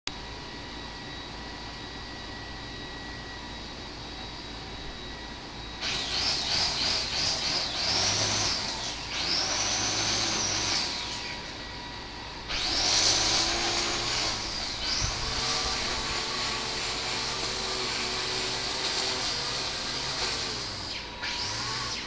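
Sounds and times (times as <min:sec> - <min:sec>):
cicadas buzzing: 0:00.6 - 0:22.0.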